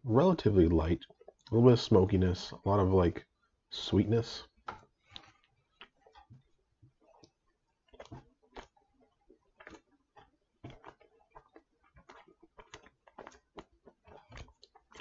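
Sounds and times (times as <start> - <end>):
person chewing wetly: 0.8 - 1.7, 4.5 - 15.0.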